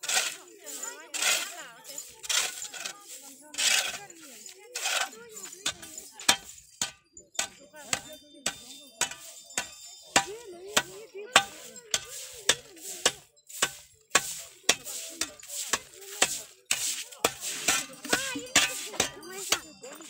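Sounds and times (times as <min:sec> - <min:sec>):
sharp rhythmic strikes: 0:04.8 - 0:20.0.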